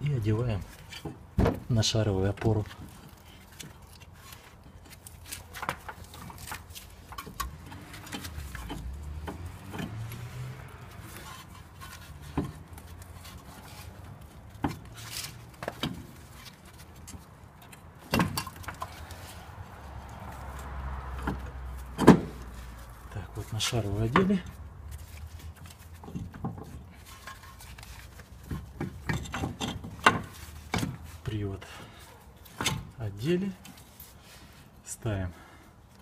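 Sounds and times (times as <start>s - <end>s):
metal clinks and knocks: 2.8s - 19.4s, 24.0s - 31.2s.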